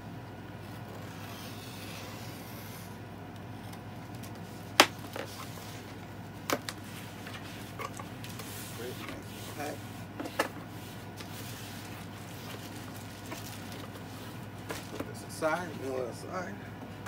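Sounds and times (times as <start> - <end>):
low steady hum: 0.0 - 17.0
blade scraping cardboard: 0.7 - 3.0
cardboard flap snapping: 4.8 - 5.2.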